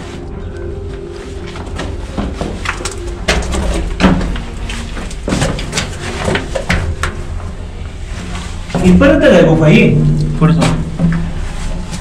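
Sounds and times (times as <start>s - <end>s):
scuffs and knocks of movement: 0.0s - 9.2s
low rumble: 3.0s - 12.0s.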